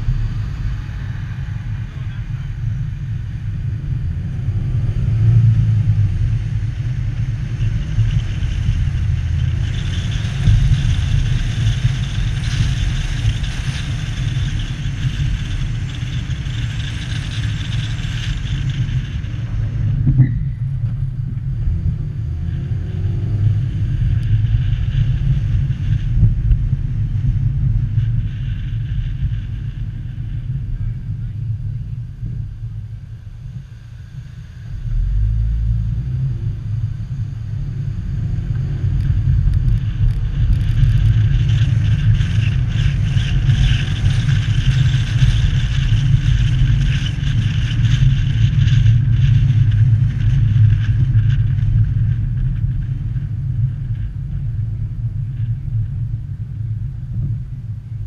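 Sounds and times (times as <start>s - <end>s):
car engine and road noise: 0.0s - 58.0s.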